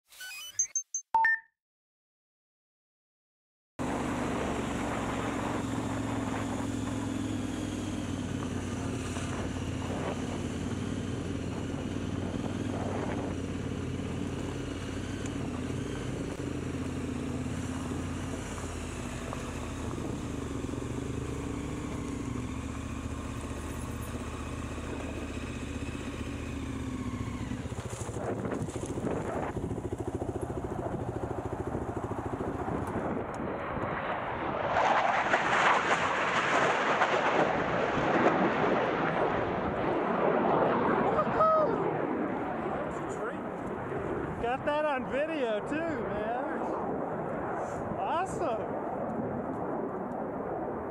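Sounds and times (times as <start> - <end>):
motorcycle engine idling: 3.8 - 33.2
dirt bike engine approaching: 3.8 - 50.9.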